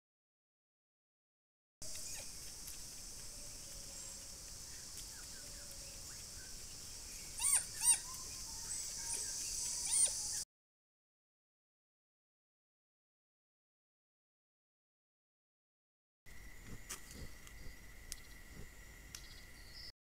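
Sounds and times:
high insect-like drone: 0:01.8 - 0:10.4
whistled animal calls: 0:07.4 - 0:10.4.

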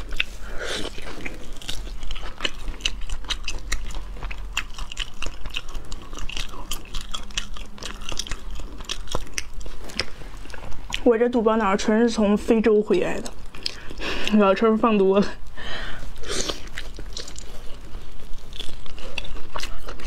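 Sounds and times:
chewing with wet mouth clicks: 0:00.0 - 0:11.1, 0:13.1 - 0:14.4, 0:16.4 - 0:20.0.

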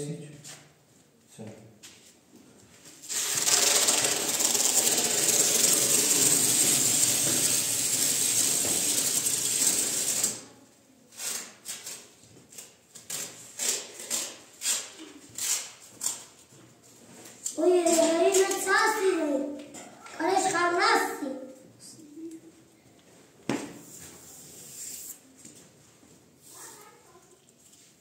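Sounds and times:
small machine running: 0:03.1 - 0:10.5.

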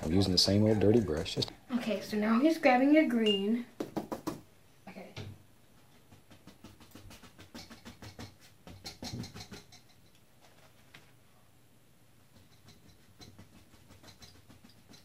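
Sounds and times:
paintbrush dabbing on canvas: 0:00.0 - 0:01.5, 0:05.9 - 0:09.5, 0:12.3 - 0:15.0.

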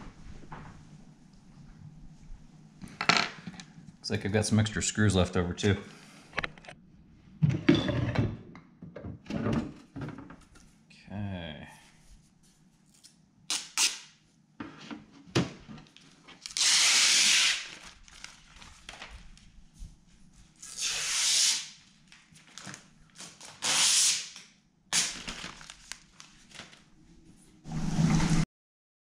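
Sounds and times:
packaging tearing: 0:16.4 - 0:19.1, 0:20.6 - 0:26.8.

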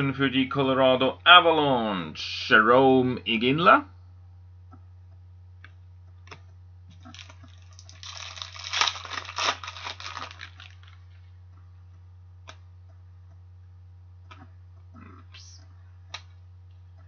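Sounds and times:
trading cards rustling: 0:07.0 - 0:11.2.

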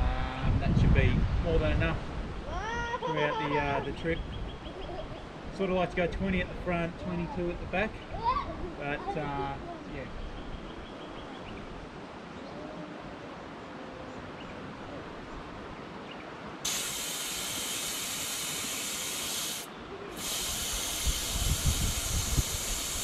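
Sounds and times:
air hissing out of tyre: 0:16.6 - 0:23.0.

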